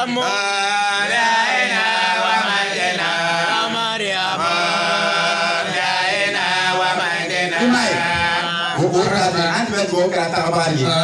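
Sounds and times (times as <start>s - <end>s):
man chanting into microphone: 7.0s - 11.0s.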